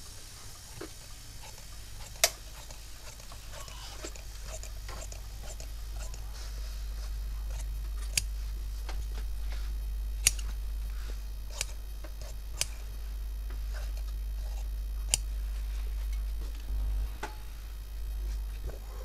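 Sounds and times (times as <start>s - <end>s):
shears snipping cloth: 0.7s - 17.6s
shear blades clicking shut: 10.2s - 10.6s.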